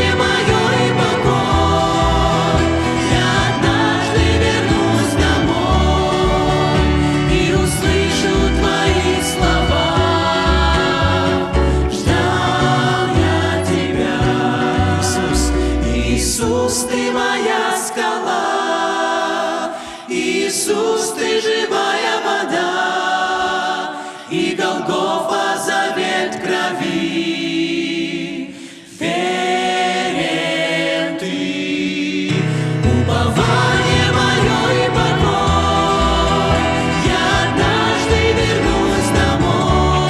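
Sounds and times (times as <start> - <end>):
violin: 0.0 - 16.1
acoustic guitar: 0.0 - 16.5, 32.3 - 40.0
upright bass: 0.0 - 16.8, 32.4 - 40.0
group singing in harmony: 0.0 - 40.0
keyboard: 0.0 - 40.0.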